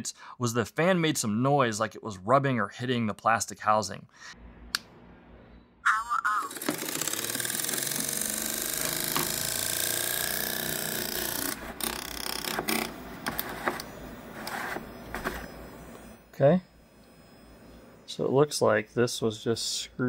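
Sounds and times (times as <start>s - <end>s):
blower fan scraping whir: 6.6s - 18.4s.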